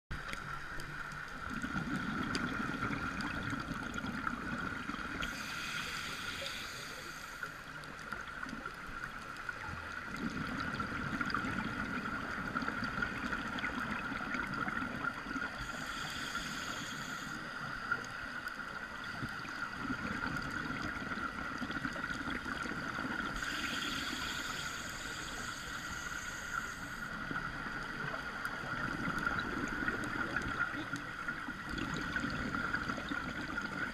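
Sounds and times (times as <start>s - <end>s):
steady high hum: 0.1s - 8.1s
regulator inhalation hiss: 5.2s - 7.9s, 15.4s - 18.0s, 23.2s - 27.3s.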